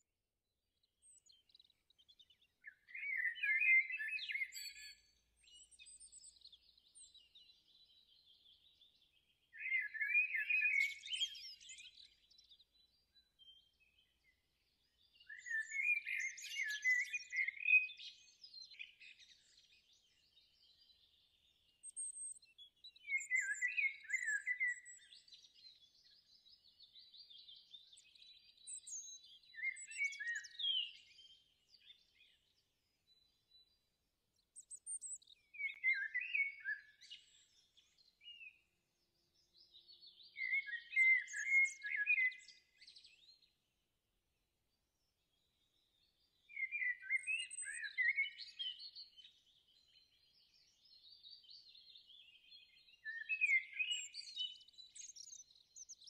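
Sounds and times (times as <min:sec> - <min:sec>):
songbird chirping and singing: 0:00.9 - 0:56.0.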